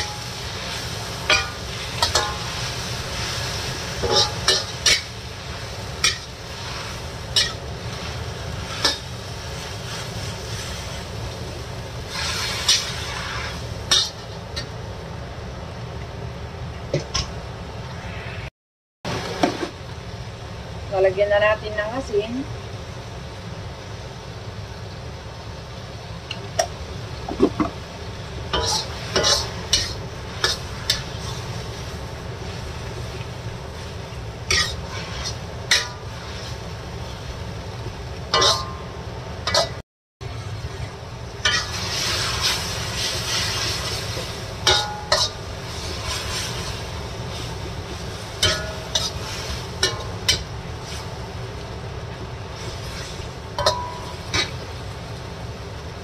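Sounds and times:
metal spatula scraping wok: 0.0 - 5.2, 12.1 - 14.7, 28.5 - 32.7, 34.5 - 36.6, 41.4 - 51.2, 52.5 - 54.7
frying sizzle: 0.0 - 18.4, 19.1 - 56.0.

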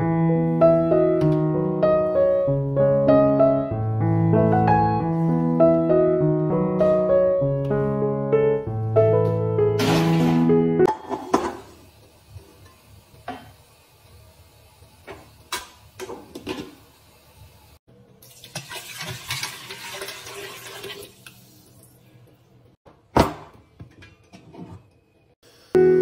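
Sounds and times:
water pouring into metal pot: 18.2 - 22.0.

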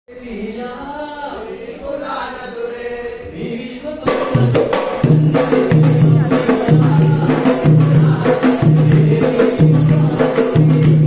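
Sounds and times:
voices singing a chant: 0.1 - 11.0
hand-played barrel drums: 4.0 - 11.0.

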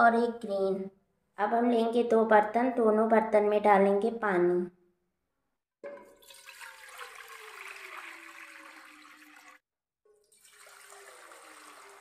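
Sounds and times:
water pouring into metal pot: 5.8 - 12.0.

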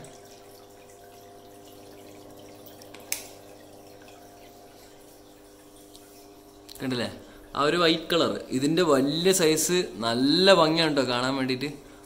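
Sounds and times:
aquarium aeration bubbling: 0.0 - 12.0.

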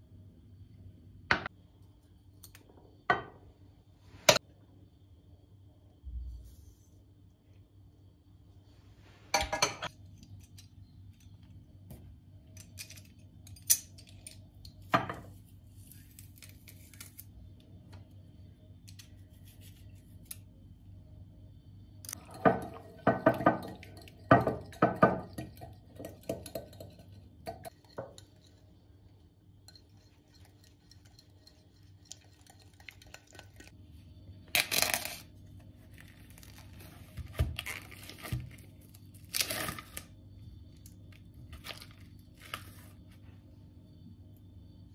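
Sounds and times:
utensil scraping glass bowl: 29.7 - 33.7.

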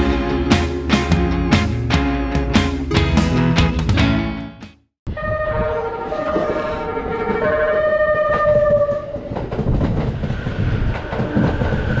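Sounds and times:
train horn: 5.1 - 9.3
low rumble of a train: 5.1 - 12.0.

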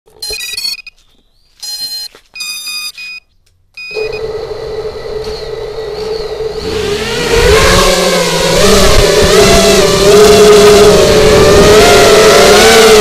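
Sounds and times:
short electronic beeps: 0.2 - 1.0, 1.6 - 4.2
drone motors idling: 3.9 - 13.0.

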